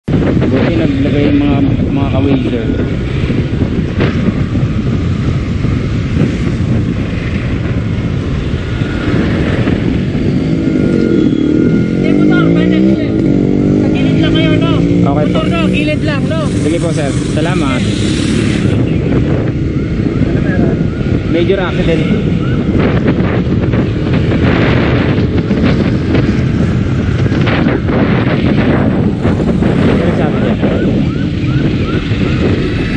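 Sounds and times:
wind rumble on microphone: 0.0 - 32.9.

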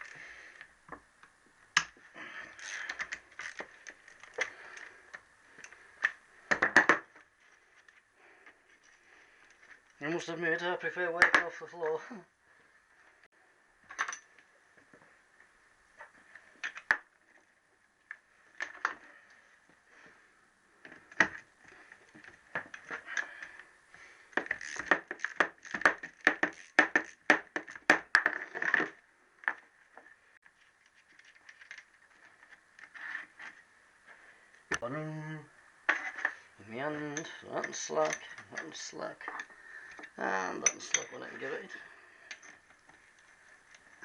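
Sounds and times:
hand tools clinking on metal: 37.1 - 41.6.

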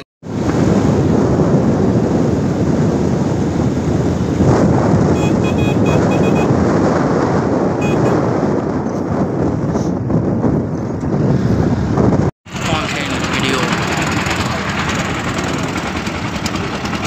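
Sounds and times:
road rumble: 0.2 - 17.0
wind buffeting microphone: 0.2 - 17.0
short high beeps: 5.2 - 6.5, 7.8 - 8.2.

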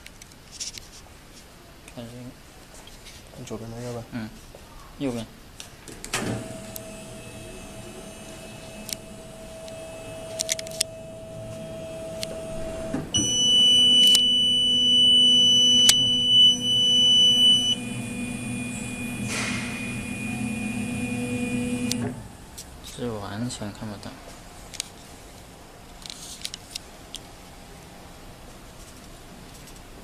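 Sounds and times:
paper cutter humming: 6.3 - 22.3
high electronic buzzer tone: 6.6 - 22.0
deep motor hum: 6.8 - 22.0
clicks: 8.6 - 11.6, 13.2 - 18.0, 21.5 - 22.2.

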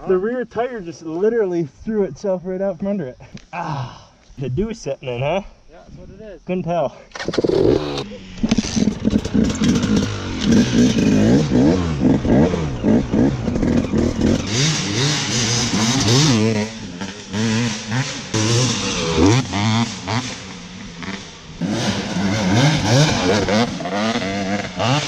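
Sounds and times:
dirt bike engine revving: 7.1 - 25.0.

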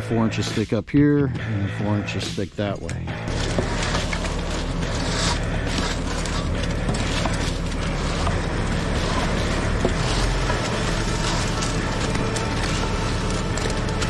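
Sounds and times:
concrete truck drum turning: 3.1 - 14.0.

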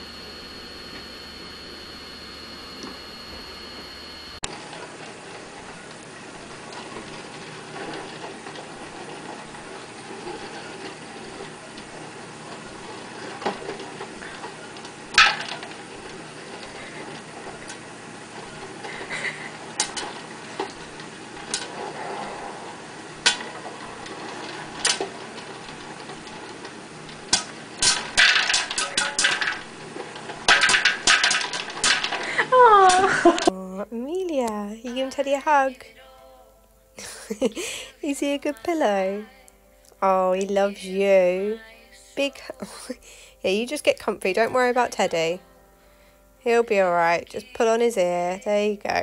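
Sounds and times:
popcorn popping: 0.0 - 22.0, 22.6 - 33.7
popcorn machine low noise: 0.0 - 49.0.

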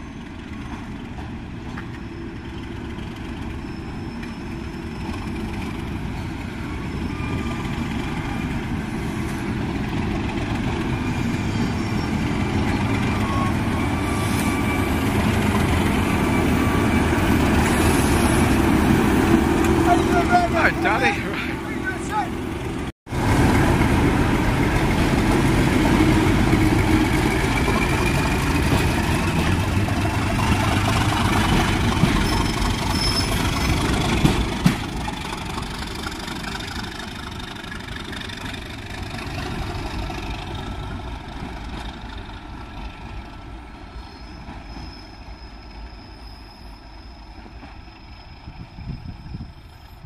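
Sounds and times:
diesel locomotive engine: 0.0 - 50.0
whistle rising in pitch: 6.2 - 7.9.

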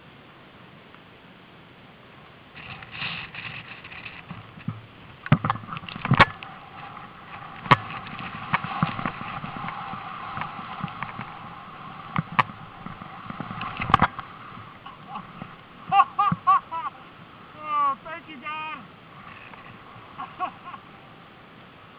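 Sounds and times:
snow and wind rushing on microphone: 0.0 - 21.9
handheld camera knocks and thumps: 3.4 - 6.4.

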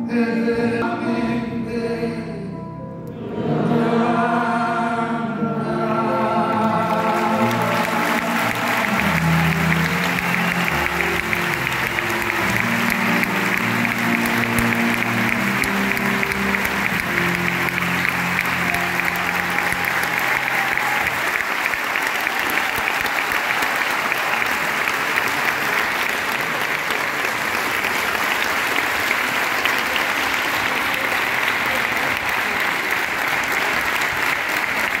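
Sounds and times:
band holding low notes: 3.0 - 21.3
audience applauding: 6.6 - 35.0.

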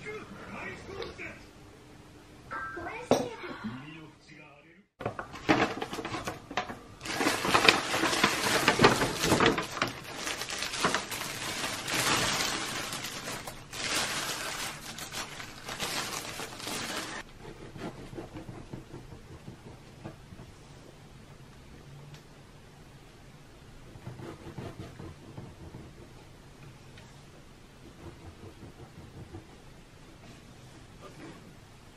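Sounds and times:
paper and plastic bags crinkling: 5.0 - 17.3.

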